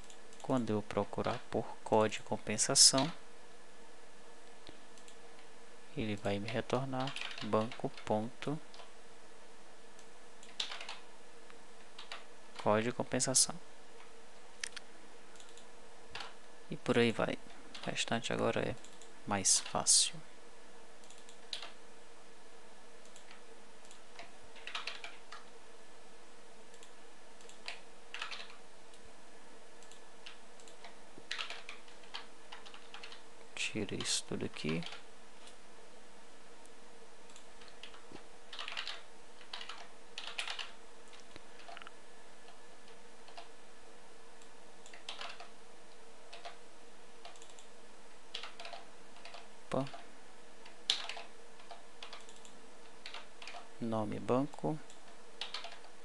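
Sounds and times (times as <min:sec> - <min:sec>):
faint steady hum: 0:00.0 - 0:56.0
keyboard keystrokes: 0:06.1 - 0:08.1, 0:10.4 - 0:11.0, 0:12.0 - 0:12.7, 0:21.0 - 0:21.8, 0:23.0 - 0:25.5, 0:26.7 - 0:28.6, 0:29.8 - 0:33.2, 0:37.3 - 0:41.9, 0:44.8 - 0:45.5, 0:46.3 - 0:46.6, 0:48.3 - 0:50.0, 0:50.9 - 0:53.7, 0:54.9 - 0:55.9.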